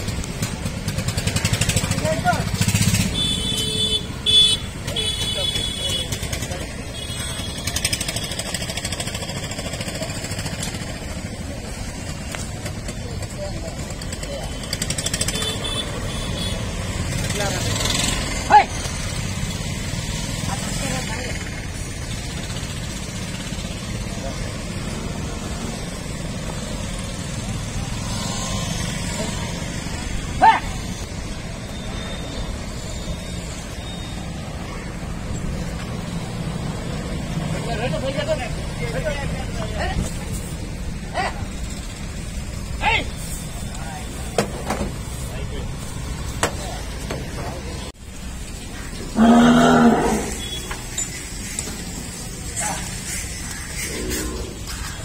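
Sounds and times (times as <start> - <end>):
road traffic rumble: 0.0 - 55.0.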